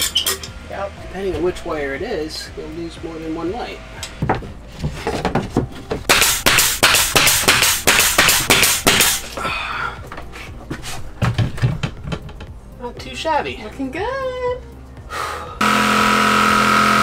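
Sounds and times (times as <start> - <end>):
nail gun firing: 6.1 - 9.2.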